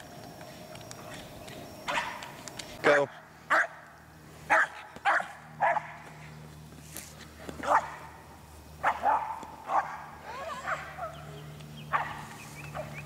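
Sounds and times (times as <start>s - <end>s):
dog barking: 1.9s - 2.2s, 3.5s - 3.8s, 4.5s - 6.0s, 7.6s - 8.1s, 8.8s - 13.0s.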